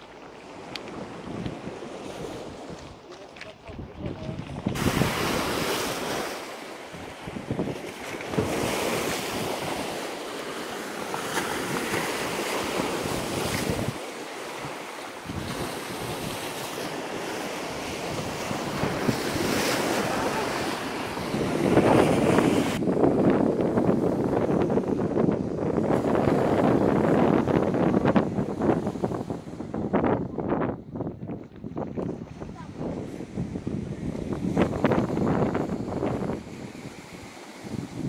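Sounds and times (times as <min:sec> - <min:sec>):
waves breaking on pebble shore: 0:00.0 - 0:29.9
wind buffeting microphone: 0:00.0 - 0:38.0.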